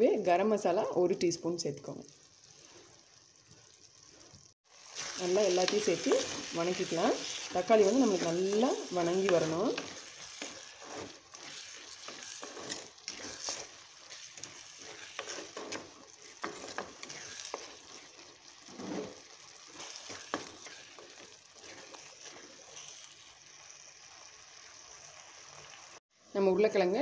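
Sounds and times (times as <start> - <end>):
tomatoes sizzling in hot oil: 0.0 - 27.0
spatula scraping and knocking pot: 5.6 - 22.9.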